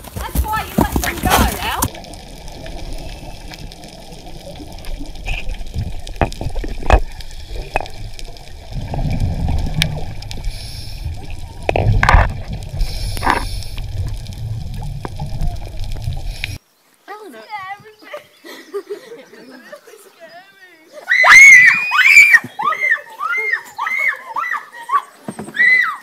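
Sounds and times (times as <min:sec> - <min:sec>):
water gurgling: 0:00.0 - 0:16.6
underwater rumble of moving water: 0:00.7 - 0:16.6.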